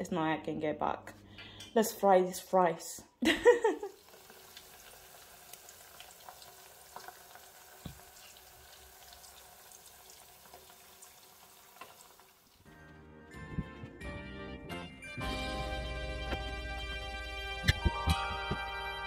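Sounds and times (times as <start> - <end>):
chips sizzling in hot oil: 3.8 - 12.7
oil popping and crackling: 3.9 - 12.7
background music: 12.7 - 19.0.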